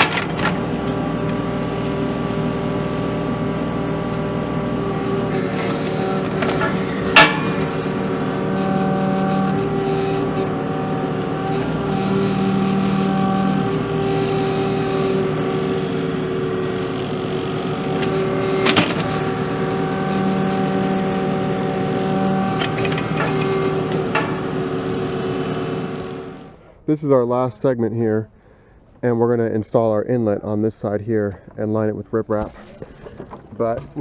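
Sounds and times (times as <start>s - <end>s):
excavator diesel engine running: 0.0s - 26.8s
sharp metal clank: 6.4s - 7.9s.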